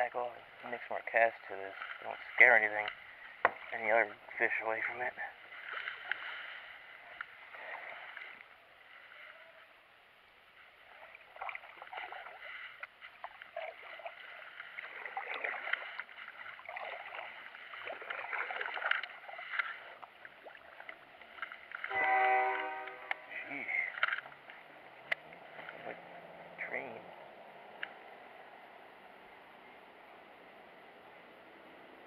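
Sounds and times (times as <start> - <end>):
water splashes and drips: 0.0 - 9.4, 10.5 - 28.1
kayak paddle strokes in water: 0.0 - 26.4.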